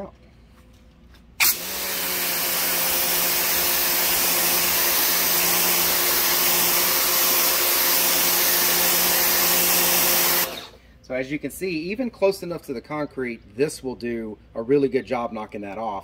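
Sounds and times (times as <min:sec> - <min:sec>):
pressure washer motor humming: 0:01.4 - 0:10.8.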